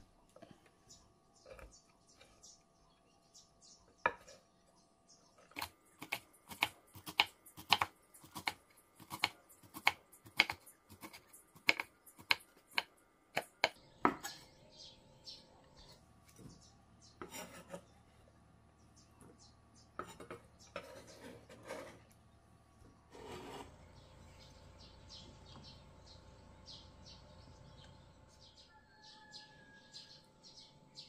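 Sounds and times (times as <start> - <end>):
knife chopping on wooden board: 5.6 - 14.4.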